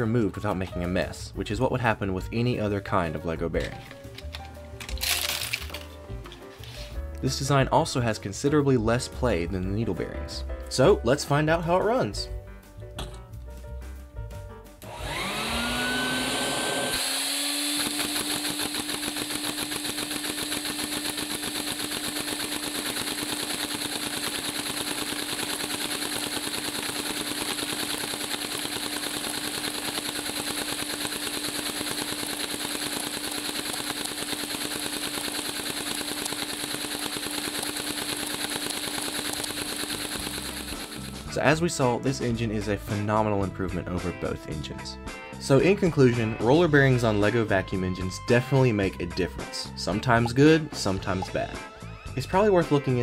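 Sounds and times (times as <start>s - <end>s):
steady whine: 14.8s - 41.3s
vacuum engine rapid clatter: 14.8s - 41.3s.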